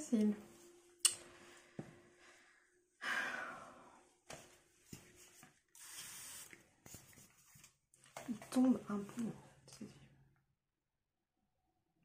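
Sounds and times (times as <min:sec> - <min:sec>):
woman sighing: 0:03.0 - 0:04.0.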